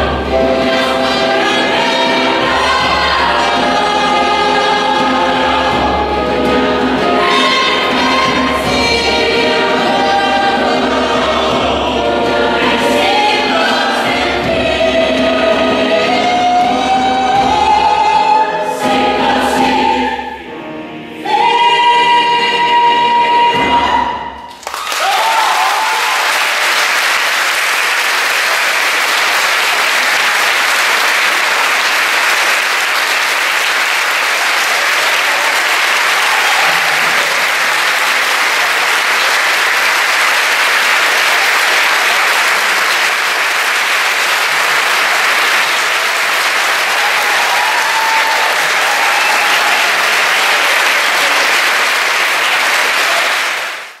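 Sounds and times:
large audience applauding: 24.5s - 54.0s.

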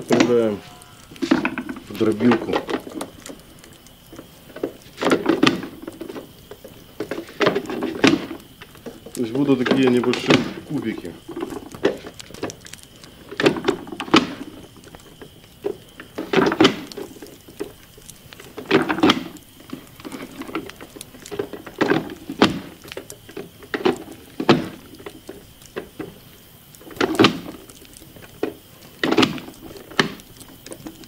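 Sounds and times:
vegetable dicer thunks: 0.0s - 3.4s, 7.0s - 12.5s, 18.5s - 26.1s, 28.4s - 31.0s.

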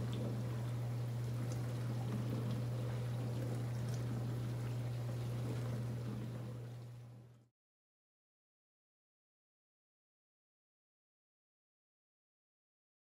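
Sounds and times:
water rushing inside dishwasher: 0.0s - 7.4s
dishwasher motor hum: 0.0s - 7.5s.

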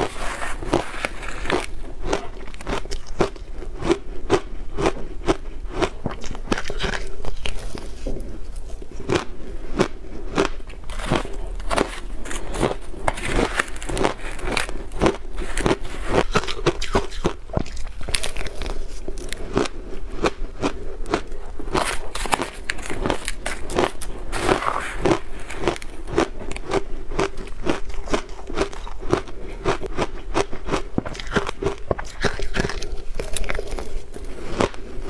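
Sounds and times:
ice being chewed crunching: 0.0s - 35.0s.

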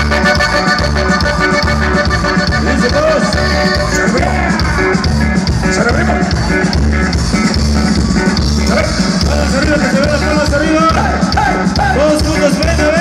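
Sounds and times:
live band music: 0.0s - 13.0s
repeating bass beat: 0.0s - 13.0s.

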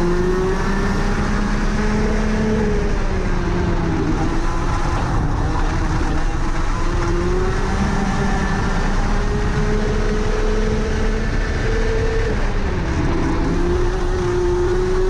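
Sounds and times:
kart engine accelerating: 0.0s - 15.0s.

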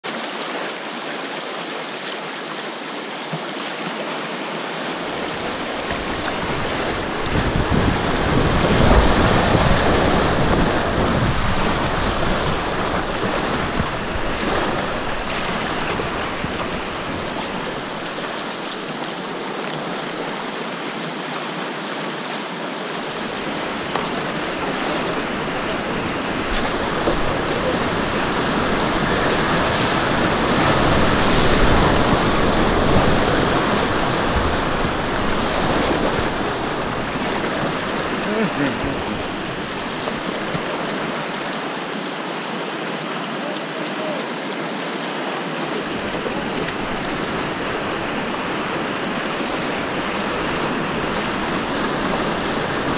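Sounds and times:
river rapids rushing and splashing: 0.0s - 52.9s
wind buffeting microphone: 5.0s - 18.4s, 23.1s - 41.2s.

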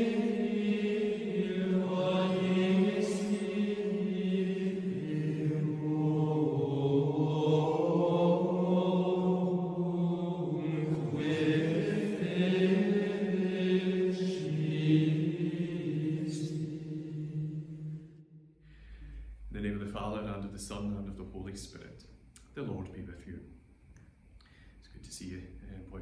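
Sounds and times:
low male sacred chant: 0.0s - 16.7s.

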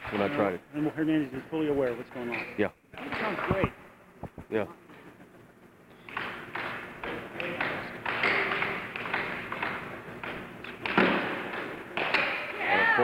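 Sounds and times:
air hockey puck knocks: 6.1s - 12.6s.

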